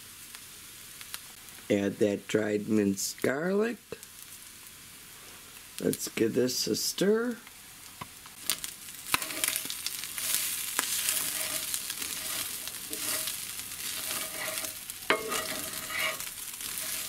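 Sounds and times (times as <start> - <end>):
meat sizzling in a pan: 0.0 - 17.0
utensil scraping and clicking on pan: 9.1 - 17.0.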